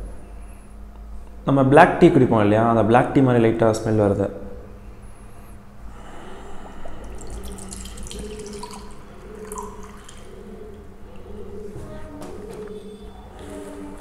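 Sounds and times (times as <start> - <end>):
liquid trickling into glass: 6.7 - 10.9.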